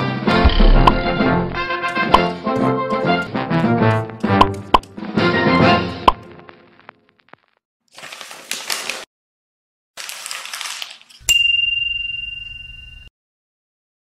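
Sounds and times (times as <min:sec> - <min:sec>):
bright metallic ding: 0:11.3 - 0:13.1.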